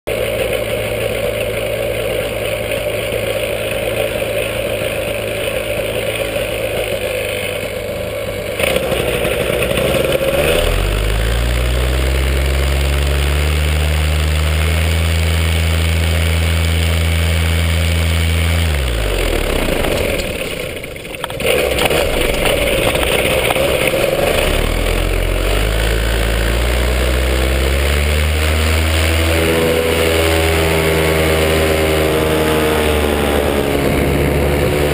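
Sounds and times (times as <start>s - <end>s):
engine revving: 0.1s - 34.9s.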